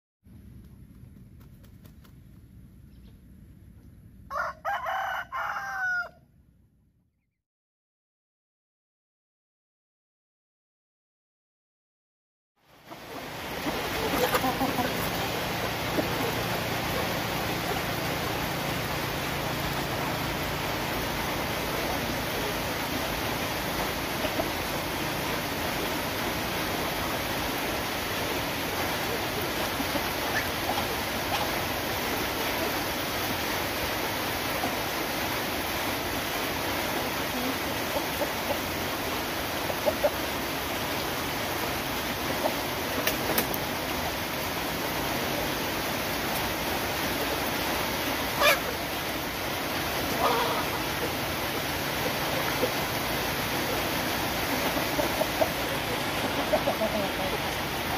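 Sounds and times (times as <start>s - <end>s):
steady rain hiss: 12.6s - 57.9s.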